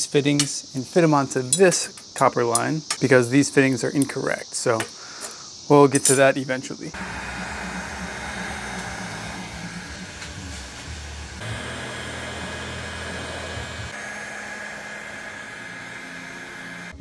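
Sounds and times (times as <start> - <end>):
whirring motor hum: 7.0 - 17.0.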